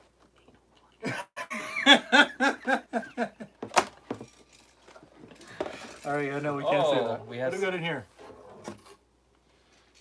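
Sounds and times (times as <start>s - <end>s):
men laughing hard: 1.1s - 3.6s.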